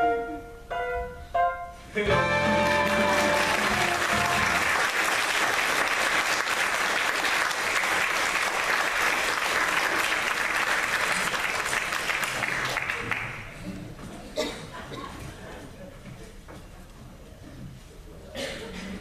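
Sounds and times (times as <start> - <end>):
backing music: 1.9 - 5.1
audience applauding: 2.2 - 13.6.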